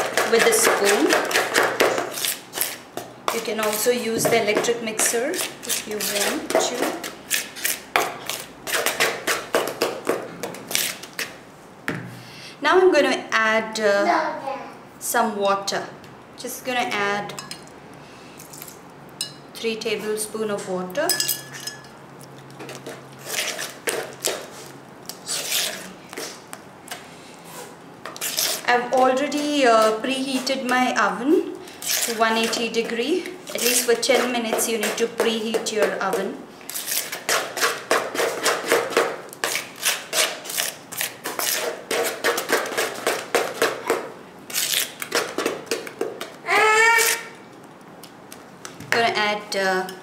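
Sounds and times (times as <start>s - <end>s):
spoon scraping batter in bowl: 0.0s - 9.5s, 22.7s - 26.4s, 27.6s - 43.8s.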